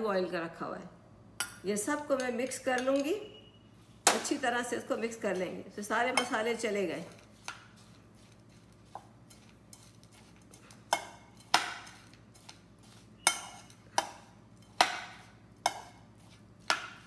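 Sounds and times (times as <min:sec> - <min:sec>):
metal spoon clinking bowl: 0:02.2 - 0:03.3, 0:09.3 - 0:12.6, 0:13.2 - 0:16.0.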